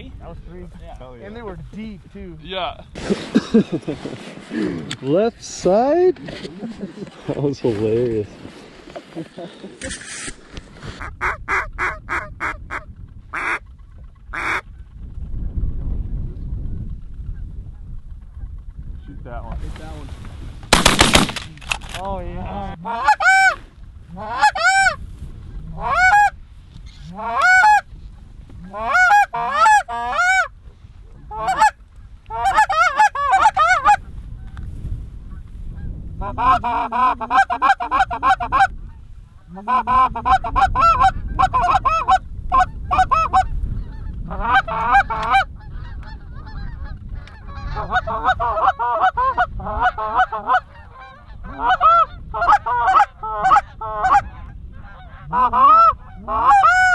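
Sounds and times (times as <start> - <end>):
geese chattering: 47.4 - 56.9.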